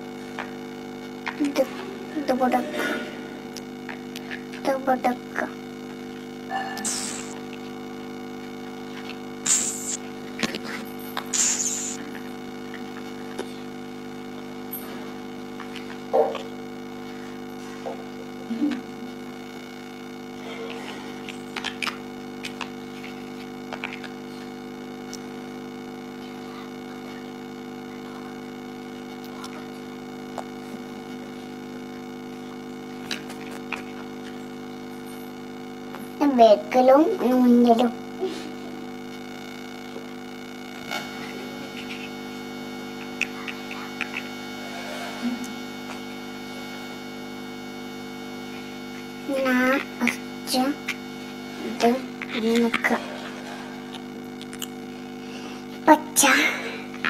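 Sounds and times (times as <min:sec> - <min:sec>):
electrical hum: 0:00.0 - 0:57.0.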